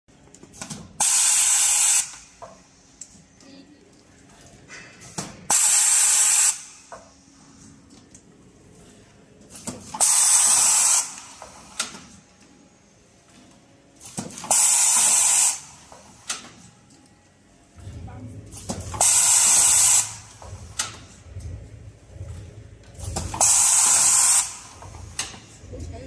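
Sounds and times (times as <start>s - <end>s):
sealing machine air hissing: 1.0s - 2.3s, 5.5s - 6.9s, 10.0s - 11.8s, 14.4s - 15.8s, 19.0s - 20.3s, 23.4s - 24.8s.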